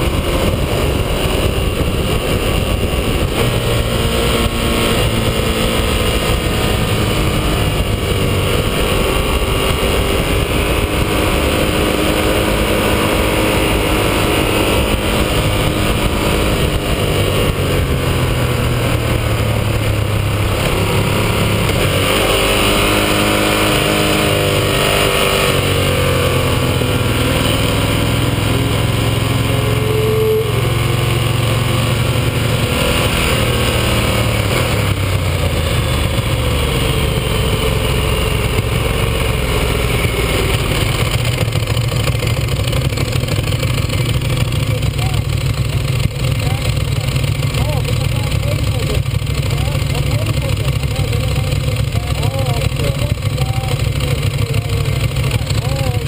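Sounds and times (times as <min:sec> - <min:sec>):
wind noise: 0:00.0 - 0:42.0
motorcycle engine at speed: 0:00.0 - 0:56.0.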